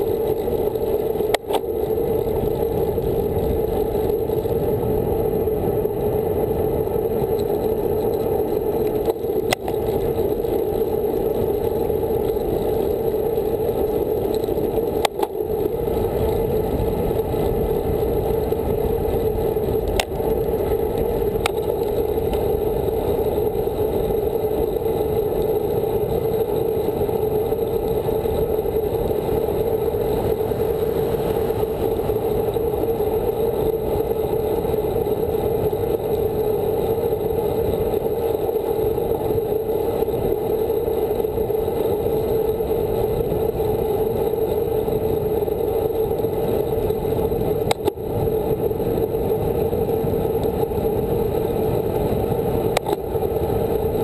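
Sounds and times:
bike tyres on asphalt: 0:00.0 - 0:54.0
sharp clicks from road bumps: 0:00.0 - 0:54.0
wind rushing: 0:28.4 - 0:33.9.

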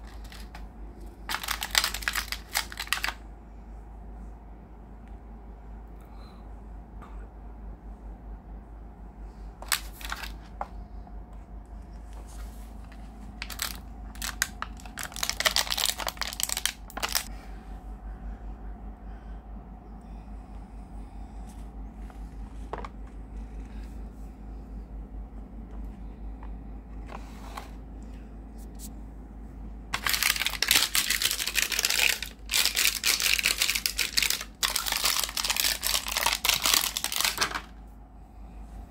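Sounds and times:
plastic packaging crackling: 0:00.0 - 0:00.6, 0:01.2 - 0:03.2, 0:09.6 - 0:10.4, 0:13.4 - 0:17.3, 0:30.0 - 0:37.7.

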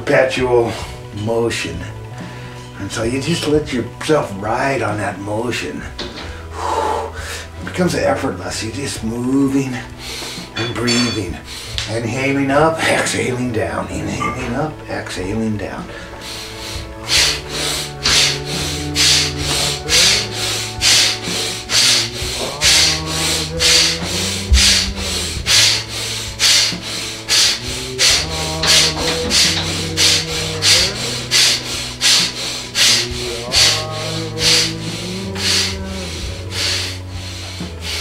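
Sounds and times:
sustained low background music: 0:00.0 - 0:38.0
rapid forceful breathing: 0:02.0 - 0:02.8, 0:05.9 - 0:07.8, 0:09.7 - 0:12.0, 0:15.8 - 0:38.0.

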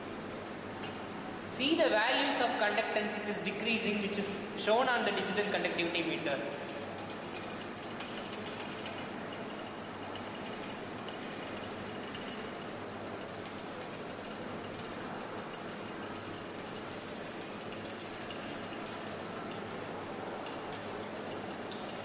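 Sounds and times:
magnetic stirrer rattling: 0:06.6 - 0:22.0.

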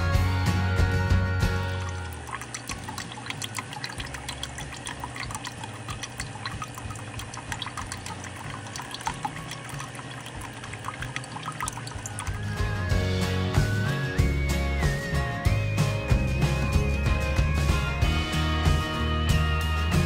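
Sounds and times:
cider trickling into bucket: 0:01.4 - 0:13.0.

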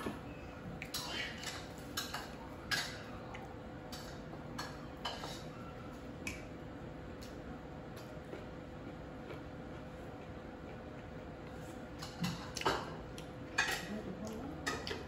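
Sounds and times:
chewing crunches: 0:07.2 - 0:13.4.

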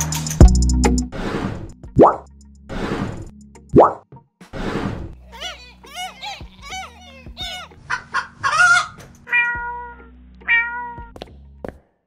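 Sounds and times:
animal calls: 0:05.2 - 0:11.0.

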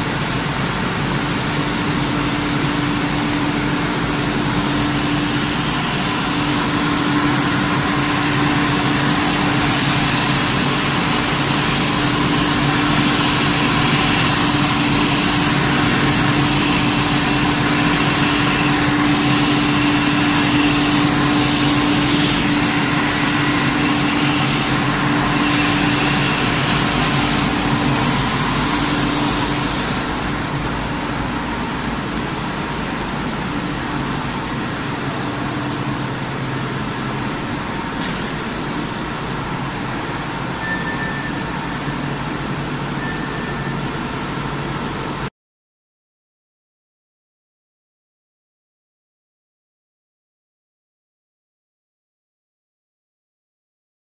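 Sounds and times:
broad rushing hiss: 0:00.0 - 0:40.6
industrial machinery drone: 0:00.0 - 0:45.3.

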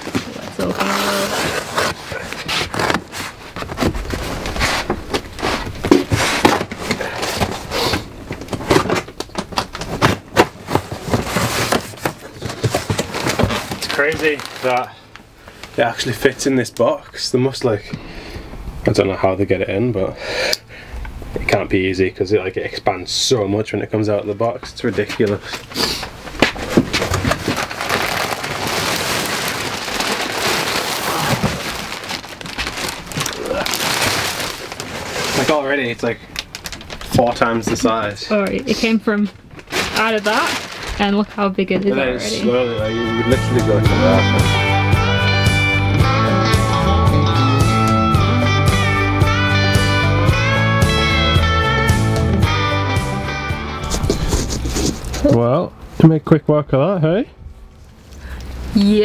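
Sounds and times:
cardboard box tearing: 0:00.0 - 0:09.1, 0:09.8 - 0:14.9, 0:26.4 - 0:35.6, 0:53.8 - 0:55.3.

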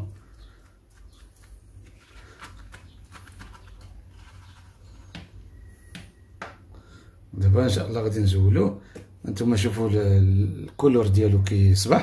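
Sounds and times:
faint wet squishes: 0:00.0 - 0:05.4.

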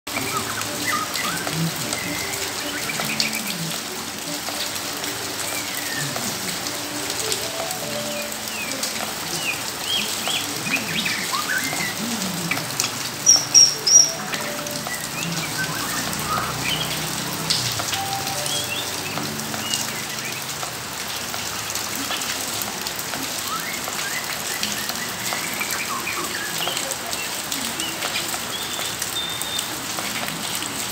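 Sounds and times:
high whistled bird notes: 0:00.1 - 0:03.5, 0:09.4 - 0:12.0, 0:13.2 - 0:17.1, 0:23.4 - 0:26.9
songbirds chirping and whistling: 0:00.1 - 0:03.9, 0:05.0 - 0:20.7, 0:23.3 - 0:30.8
rain on wet ground: 0:00.1 - 0:30.9.

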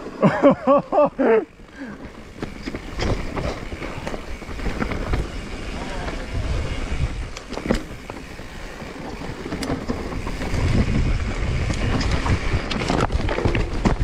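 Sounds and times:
bike clacking and rattling: 0:00.0 - 0:14.0
tyres rumbling on dirt: 0:00.0 - 0:14.0
wind on microphone: 0:03.0 - 0:08.1, 0:10.1 - 0:14.0.

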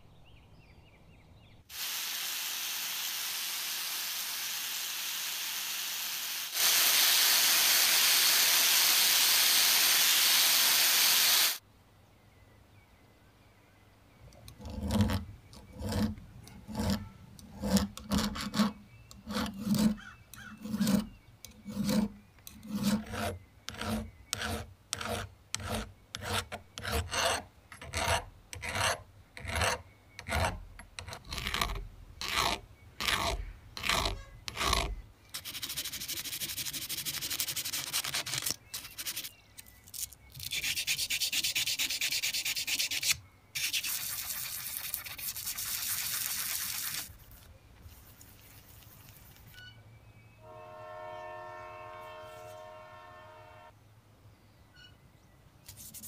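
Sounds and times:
file rasping on metal: 0:14.5 - 0:39.3.

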